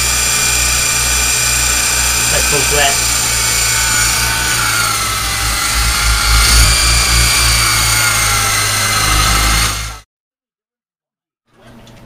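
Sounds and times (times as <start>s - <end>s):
helicopter rotors buzzing: 0.0s - 10.0s
toy helicopter motors whining: 0.0s - 10.0s.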